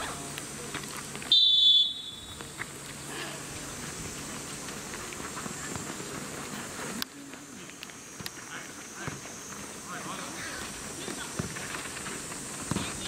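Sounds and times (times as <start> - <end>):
referee's whistle blast: 1.3 - 2.3.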